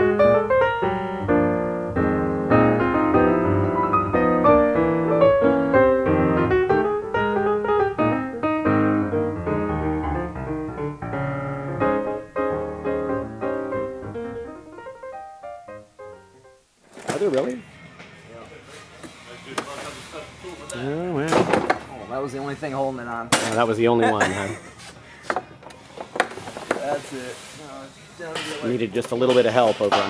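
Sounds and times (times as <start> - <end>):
piano music with busy runs: 0.0 - 17.3.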